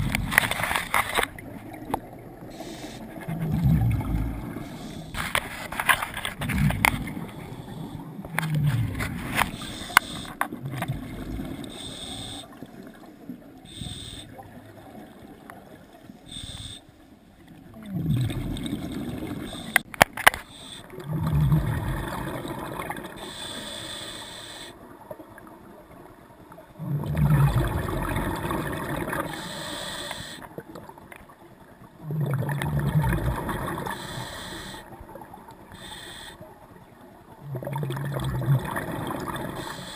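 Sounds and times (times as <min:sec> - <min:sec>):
exhaled bubbles underwater: 0:01.4 - 0:05.1, 0:06.4 - 0:16.4, 0:17.5 - 0:19.9, 0:20.8 - 0:23.6, 0:24.8 - 0:29.8, 0:30.4 - 0:35.9, 0:36.5 - 0:39.9
regulator inhalation hiss: 0:02.5 - 0:03.1, 0:09.5 - 0:10.4, 0:11.7 - 0:12.6, 0:13.7 - 0:14.4, 0:16.3 - 0:16.9, 0:20.4 - 0:20.9, 0:23.2 - 0:24.8, 0:29.3 - 0:30.5, 0:33.9 - 0:34.9, 0:35.7 - 0:36.4, 0:39.6 - 0:39.9.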